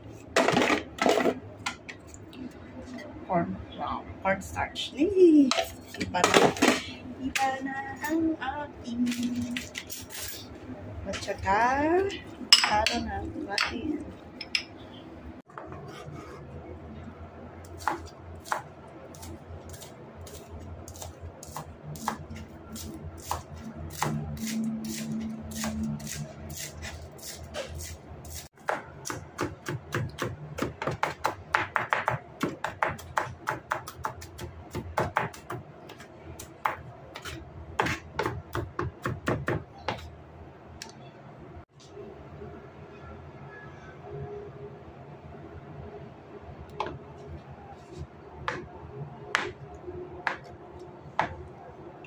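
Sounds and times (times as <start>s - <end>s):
knife chopping on plastic board: 36.6s - 40.0s.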